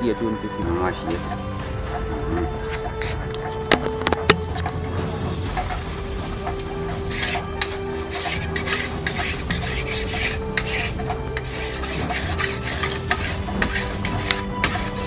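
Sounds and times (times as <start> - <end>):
file scraping machete blade: 6.9 - 15.0.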